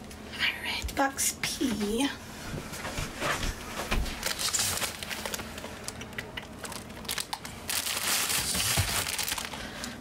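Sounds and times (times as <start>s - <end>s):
plastic bag crinkling: 4.0s - 10.0s.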